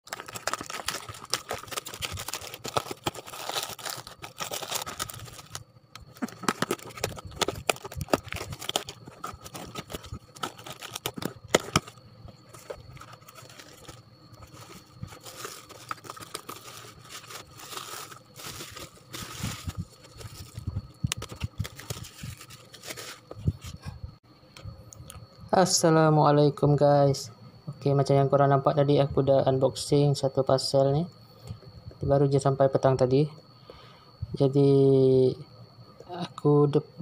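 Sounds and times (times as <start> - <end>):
plastic bag tearing and crinkling: 0.0 - 23.3
bubble wrap rustling: 0.0 - 23.8.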